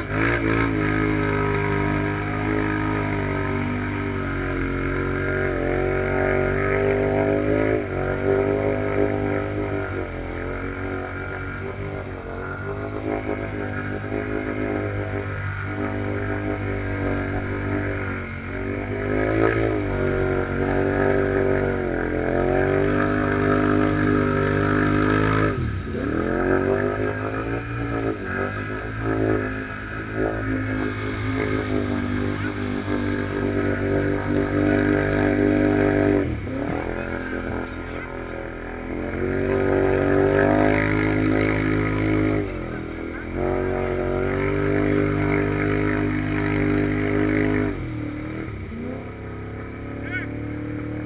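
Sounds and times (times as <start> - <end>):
atv engine revving hard: 0.0 - 51.0
atv idling nearby: 10.2 - 39.0, 39.6 - 51.0.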